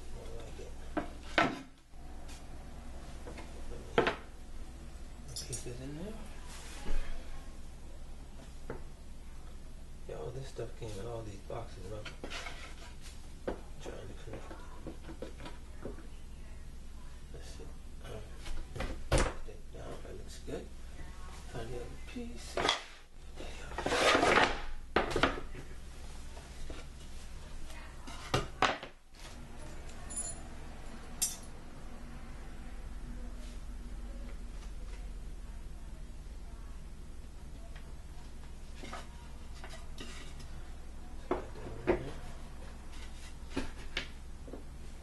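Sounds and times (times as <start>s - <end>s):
wood panel scraping: 23.7s - 24.7s.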